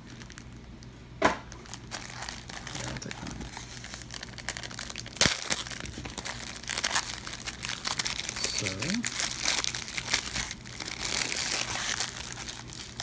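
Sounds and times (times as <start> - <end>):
packaging crinkling and crackling: 0.0 - 0.9, 1.5 - 13.0.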